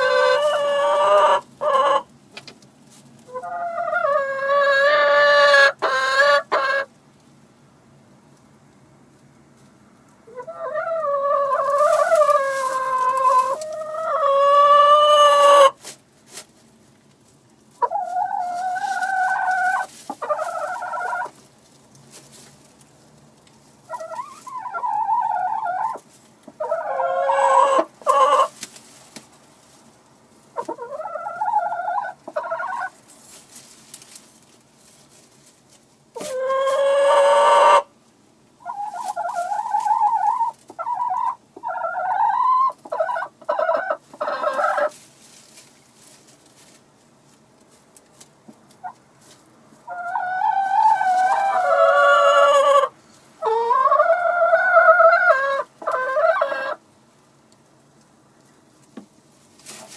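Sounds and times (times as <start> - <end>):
chickens calling: 0.0 - 2.2, 3.2 - 7.0, 10.2 - 15.9, 17.7 - 21.5, 23.8 - 29.2, 30.5 - 34.2, 36.2 - 38.0, 38.6 - 46.0, 48.7 - 56.9.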